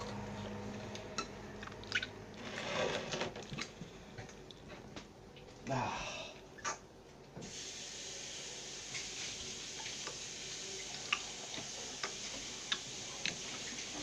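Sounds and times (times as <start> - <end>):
slime squelching: 0.0 - 4.7
steady hiss: 7.4 - 14.0.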